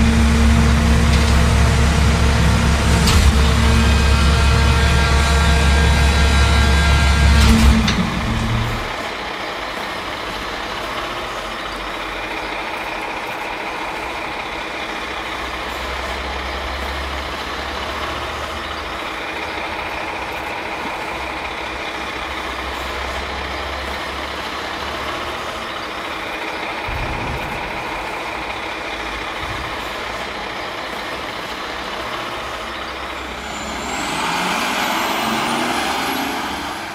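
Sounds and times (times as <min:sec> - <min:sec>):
diesel engine running: 0:00.0 - 0:36.9
engine clunk: 0:00.0 - 0:36.9
high tones: 0:33.0 - 0:36.9.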